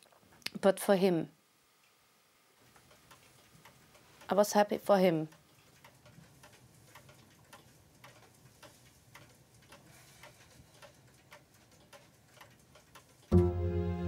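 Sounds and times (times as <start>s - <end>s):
clock ticking: 2.8s - 13.5s.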